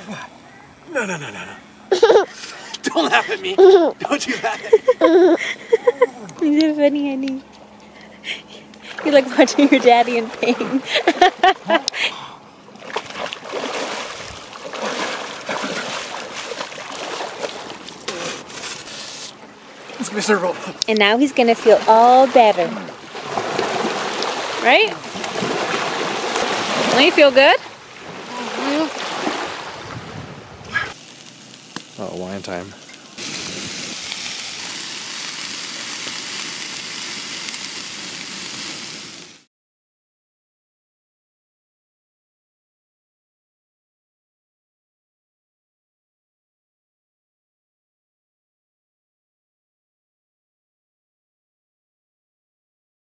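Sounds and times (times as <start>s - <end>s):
person wading through water: 8.1s - 20.8s, 21.6s - 31.0s
water boiling in a pot: 30.9s - 39.5s.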